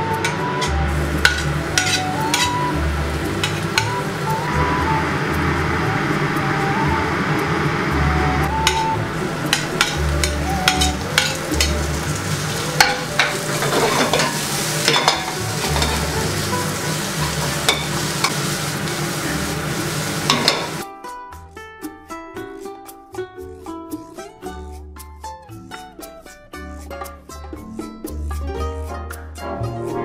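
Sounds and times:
garlic and onion sizzling in pan: 0.0s - 6.4s, 8.5s - 20.8s
spatula scraping and knocking pan: 0.2s - 2.6s, 12.8s - 19.0s, 20.2s - 20.8s.

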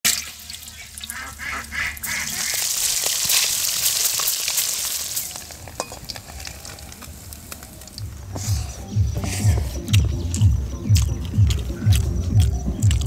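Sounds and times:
fish sizzling in hot oil: 0.0s - 8.6s
metal spatula scraping wok: 2.3s - 7.6s, 8.2s - 9.8s.

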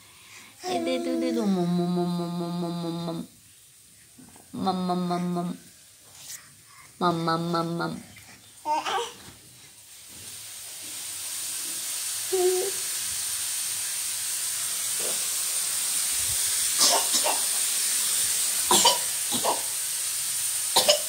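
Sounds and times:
steady hiss: 0.0s - 21.0s
person humming: 0.6s - 3.3s, 4.6s - 5.6s, 7.0s - 8.0s.

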